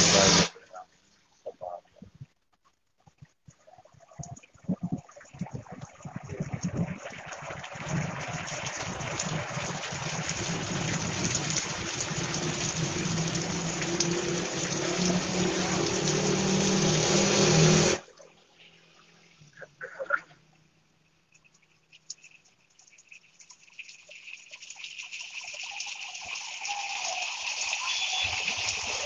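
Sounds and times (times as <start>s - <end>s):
heavy rain pouring: 0.0s - 0.7s, 7.6s - 18.0s, 25.8s - 29.0s.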